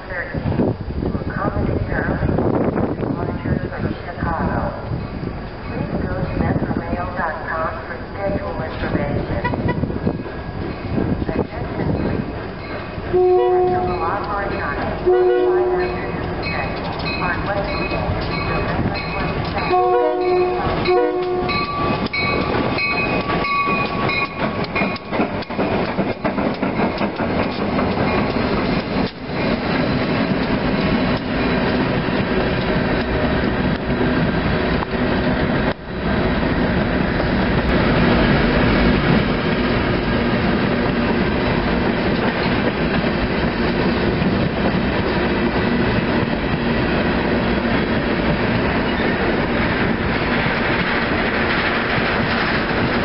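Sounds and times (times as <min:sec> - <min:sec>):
freight train rumbling: 0:00.0 - 0:53.0
locomotive horn blast: 0:13.1 - 0:14.3, 0:14.9 - 0:16.2, 0:19.6 - 0:21.7
wheels clicking on rails: 0:15.8 - 0:53.0.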